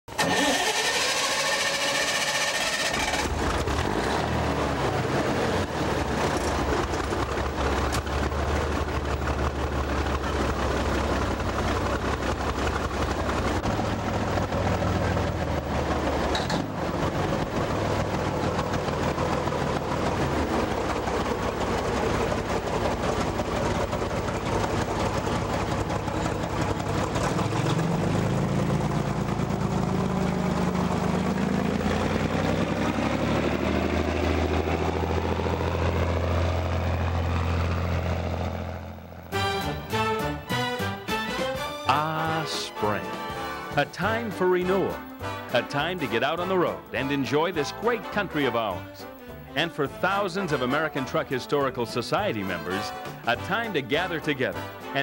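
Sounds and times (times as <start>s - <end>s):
diesel truck engines idling: 0.1s - 55.0s
truck engine revving: 0.1s - 55.0s.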